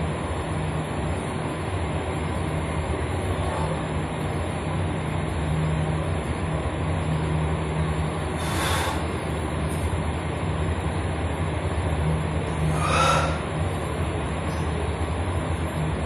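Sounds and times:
low rumbling hum: 0:00.0 - 0:16.0.

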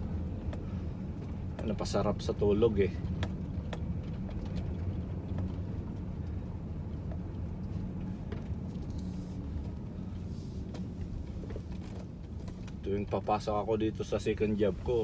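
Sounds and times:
road and engine rumble: 0:00.0 - 0:15.0.

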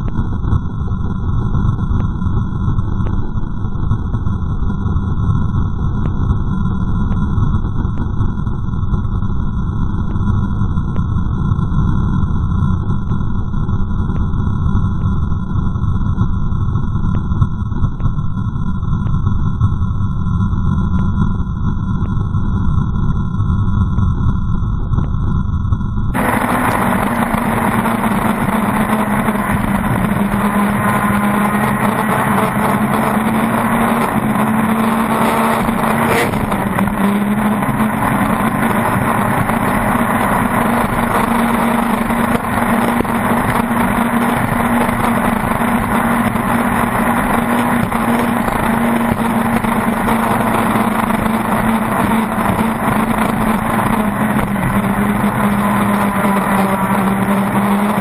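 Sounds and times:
boat engine running flat out: 0:00.0 - 0:58.0
water rushing: 0:26.2 - 0:58.0.

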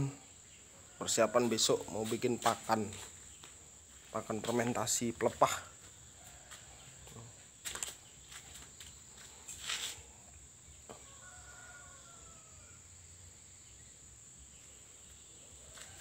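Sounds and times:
high-pitched insect buzz: 0:07.0 - 0:16.0
short rustling: 0:09.3 - 0:10.1.

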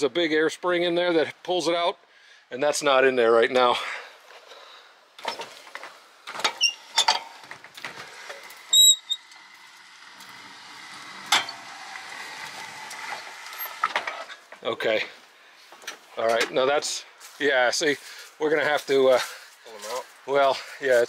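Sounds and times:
metal arms clicking and knocking: 0:05.2 - 0:14.6
ringing squeak: 0:06.5 - 0:07.2, 0:08.7 - 0:09.4
steady mechanical noise: 0:06.8 - 0:14.6.

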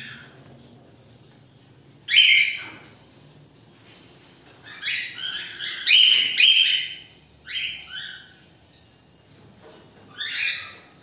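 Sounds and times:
cockatiels calling: 0:00.0 - 0:00.4, 0:02.0 - 0:03.0, 0:04.6 - 0:08.5, 0:10.0 - 0:11.0.

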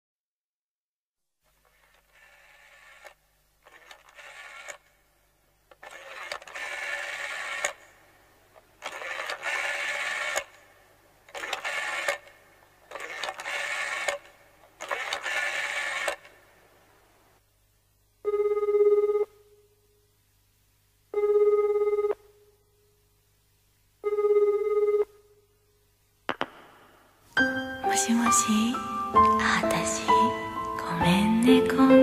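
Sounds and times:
telephone bell ringing: 0:18.2 - 0:19.4, 0:21.2 - 0:22.2, 0:24.0 - 0:25.1.

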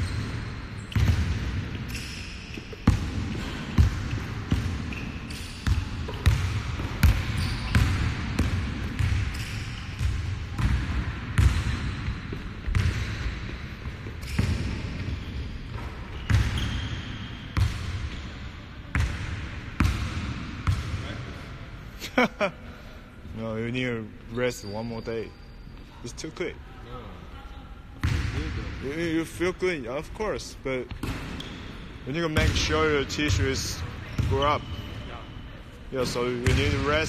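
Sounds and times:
sneaker squeaks: 0:00.0 - 0:19.1, 0:24.2 - 0:26.2, 0:30.9 - 0:36.8.

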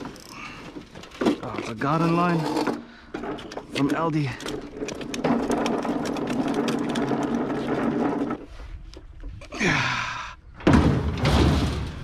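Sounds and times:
lawn mower rattling over asphalt: 0:00.0 - 0:08.6.

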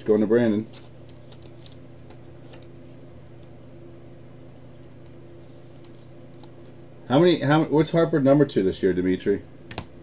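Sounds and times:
low electrical hum: 0:00.0 - 0:10.0
card rustling in plastic holder: 0:00.7 - 0:02.7.

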